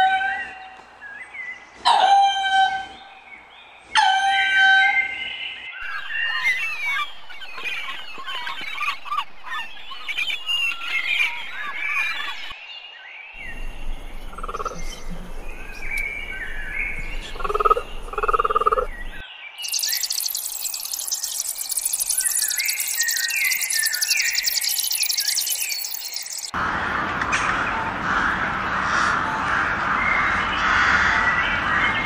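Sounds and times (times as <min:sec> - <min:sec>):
birds chirping and singing: 0:00.3 - 0:26.6
dense high-pitched buzz: 0:19.6 - 0:26.5.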